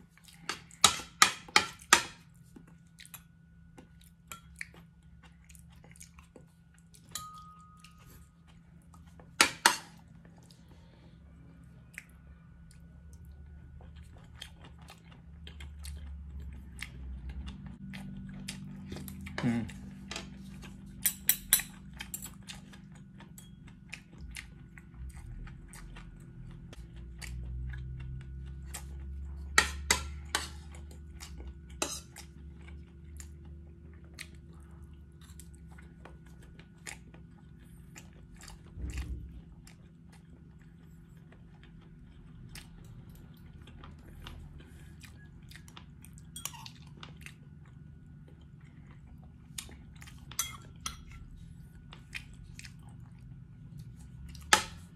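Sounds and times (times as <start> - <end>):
chewing and mouth sounds: 0.0 - 54.9
faint steady hum: 0.0 - 54.9
cutlery clinking on a plate: 7.1 - 8.1, 50.4 - 51.2.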